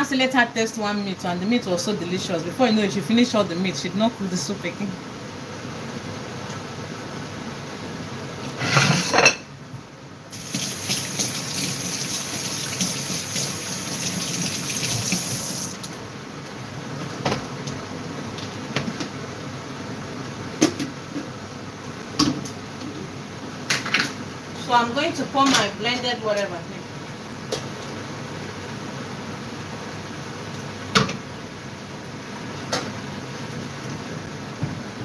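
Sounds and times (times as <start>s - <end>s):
tap water running into sink: 10.4s - 15.9s.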